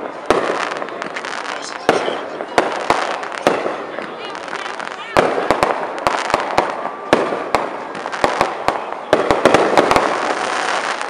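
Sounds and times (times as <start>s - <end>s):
fireworks bangs and cracks: 0.0s - 11.0s
fireworks crackle: 0.0s - 11.0s.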